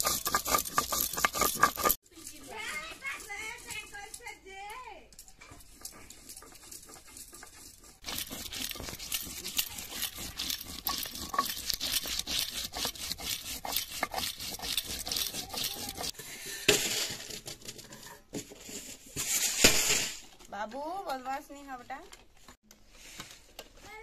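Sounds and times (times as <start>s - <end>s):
grinding stone scraping on stone: 0.0s - 4.4s, 5.2s - 16.3s.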